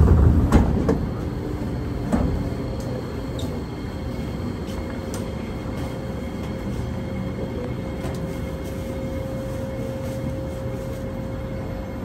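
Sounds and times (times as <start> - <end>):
train doors clunking open: 0.0 - 3.8
stopped train humming: 0.0 - 12.0.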